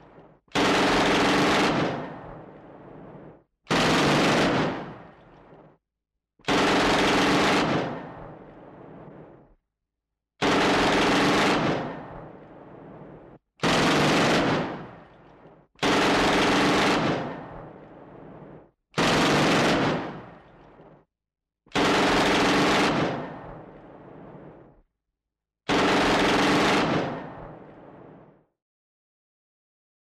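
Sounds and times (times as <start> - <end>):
machine gun bursts: 0.6 - 2.0, 3.7 - 4.9, 6.5 - 7.9, 10.4 - 11.9, 13.6 - 14.7, 15.8 - 17.3, 19.0 - 20.2, 21.8 - 23.2, 25.7 - 27.2.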